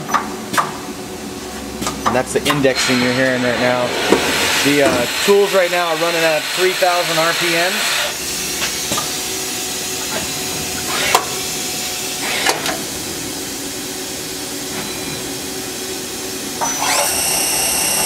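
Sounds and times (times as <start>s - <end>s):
high whine: 1.2s - 10.7s
lathe whirring and hissing: 2.4s - 18.0s.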